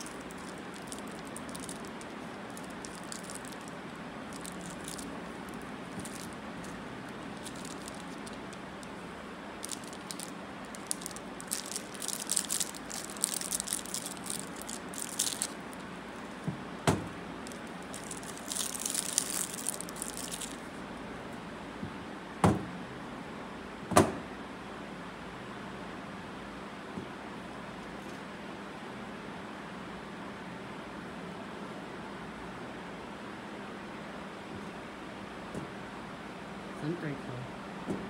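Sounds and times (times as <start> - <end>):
plastic wrappers crinkling: 0.0 - 16.4, 17.4 - 20.7.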